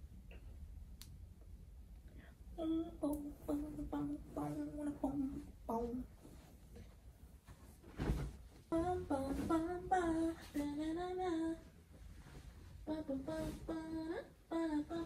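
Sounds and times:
woman singing unaccompanied: 0:02.6 - 0:06.2, 0:08.7 - 0:11.7, 0:12.8 - 0:15.0.

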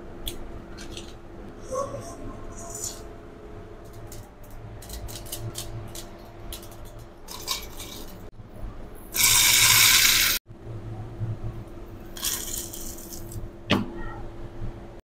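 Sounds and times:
spices clinking in steel jar: 0:04.8 - 0:08.2
seeds pouring onto steel: 0:09.2 - 0:10.4.

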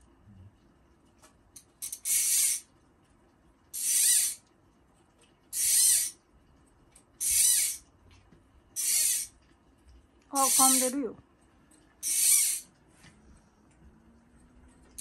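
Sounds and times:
fishing line zipping off reel: 0:01.8 - 0:02.7, 0:03.8 - 0:04.4, 0:05.5 - 0:06.2, 0:07.2 - 0:07.8, 0:08.8 - 0:09.3, 0:10.4 - 0:11.0, 0:12.0 - 0:12.7.

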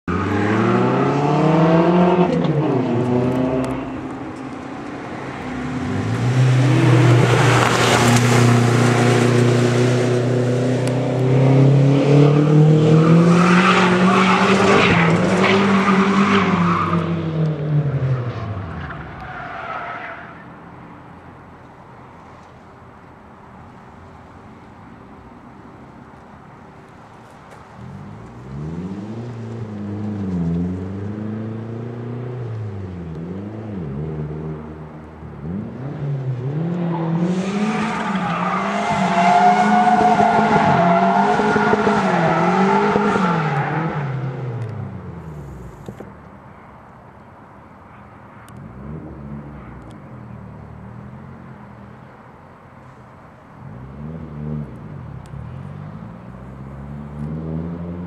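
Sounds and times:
tyres squealing and skidding: 0:00.1 - 0:01.4, 0:12.7 - 0:17.3, 0:18.0 - 0:20.8, 0:36.8 - 0:44.5.

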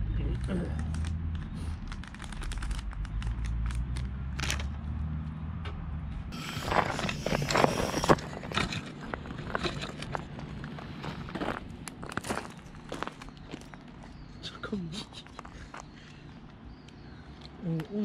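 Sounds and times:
crunching on gravel: 0:06.3 - 0:14.4.

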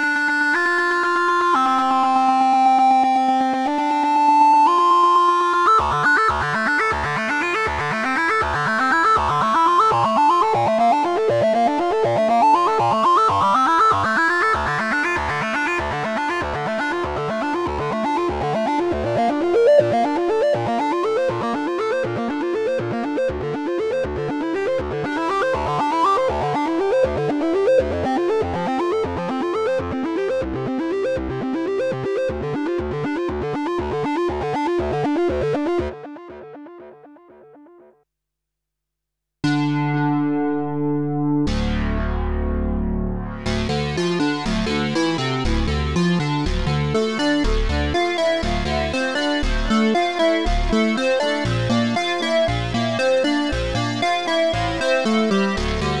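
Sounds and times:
synthesizer repeated bass notes: 0:39.4 - 0:56.0.

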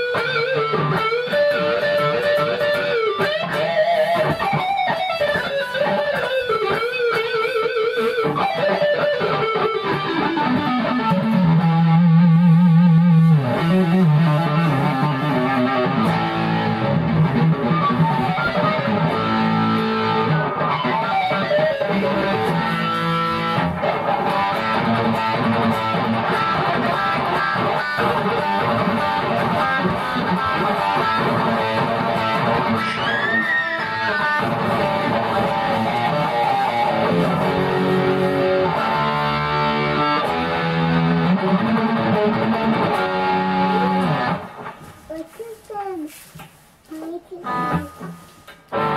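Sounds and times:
electric guitar playing: 0:00.0 - 0:45.5, 0:47.0 - 0:48.9.

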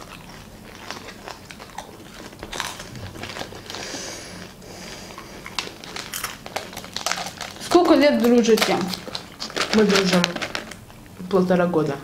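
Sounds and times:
popcorn chewing crunches: 0:00.0 - 0:11.3
hand rustling popcorn in tub: 0:05.6 - 0:10.8.

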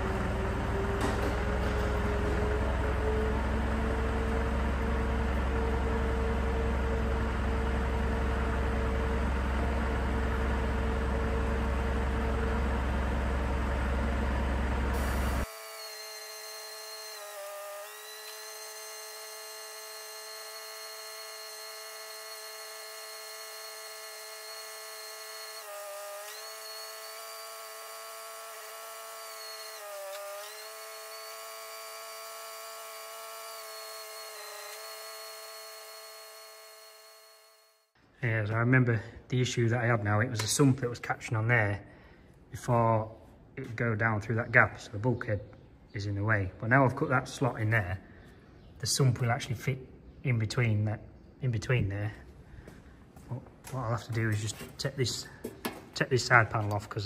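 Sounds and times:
engine deep rumble: 0:00.0 - 0:15.4
power tool motor whining: 0:14.9 - 0:37.9.

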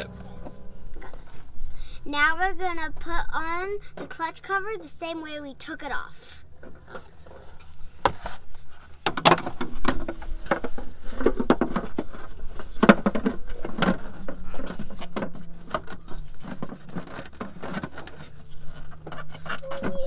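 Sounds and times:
plastic scraping: 0:09.6 - 0:20.0.

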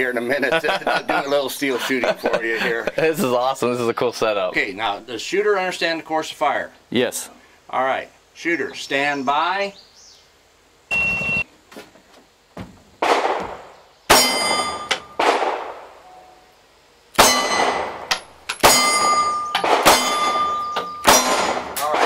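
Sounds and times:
shot timer beep: 0:10.9 - 0:11.5
pistol shots: 0:13.0 - 0:15.9, 0:17.2 - 0:22.0
steel target ringing: 0:14.1 - 0:15.3, 0:17.2 - 0:21.9.

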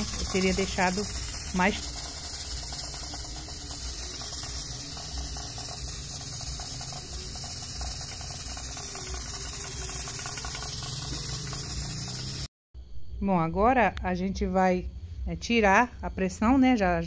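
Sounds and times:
pressure cooker hissing steam: 0:00.0 - 0:12.5.

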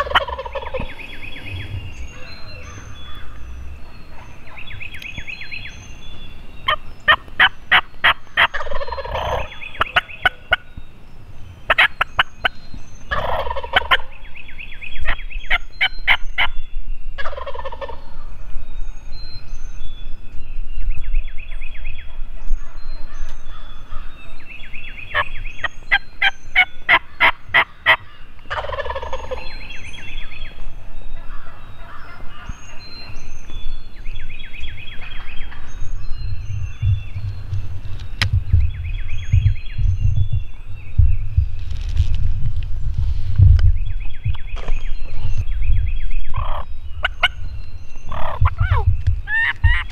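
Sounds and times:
turkey gobbling: 0:00.0 - 0:01.0, 0:06.7 - 0:10.6, 0:11.7 - 0:12.3, 0:13.1 - 0:14.1, 0:17.2 - 0:18.0, 0:25.9 - 0:29.5, 0:46.3 - 0:47.4, 0:48.1 - 0:49.9.

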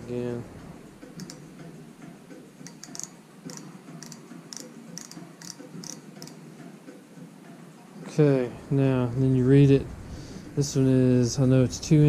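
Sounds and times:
micrometer clicking: 0:01.2 - 0:01.5, 0:02.6 - 0:06.4.

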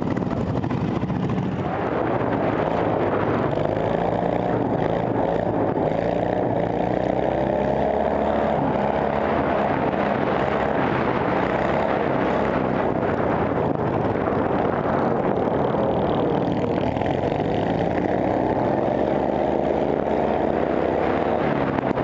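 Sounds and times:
lawn mower engine running hard: 0:00.0 - 0:22.0.

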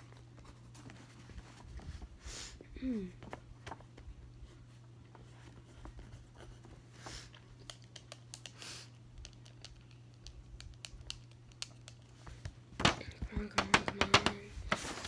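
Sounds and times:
low steady hum: 0:00.0 - 0:15.0
paper rustling: 0:13.6 - 0:15.0.

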